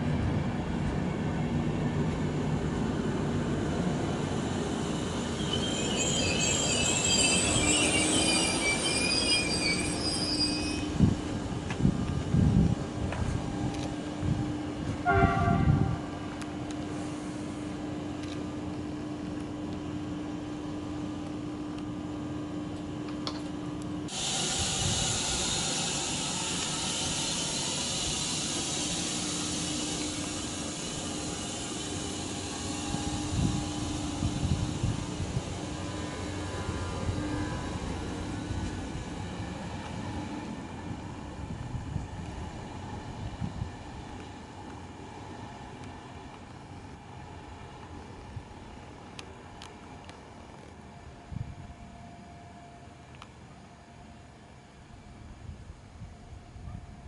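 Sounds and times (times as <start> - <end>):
train wheels rumbling on rails: 0.0 - 52.0
high-pitched wavering squeal: 4.3 - 11.2, 24.1 - 39.4.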